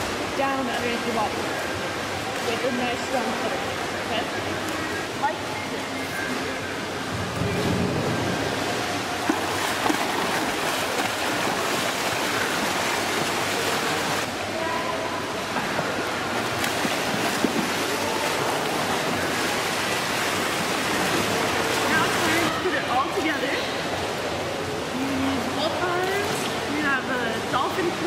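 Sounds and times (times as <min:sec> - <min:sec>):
swimmers splashing in pool water: 0:00.0 - 0:28.0.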